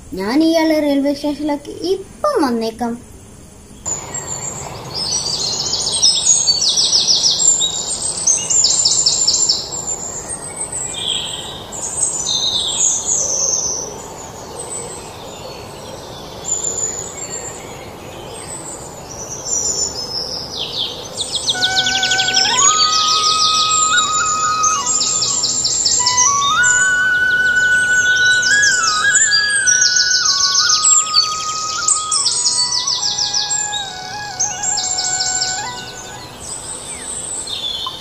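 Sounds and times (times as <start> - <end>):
birds chirping trills: 21.0 - 38.0
sustained musical notes: 21.6 - 37.5.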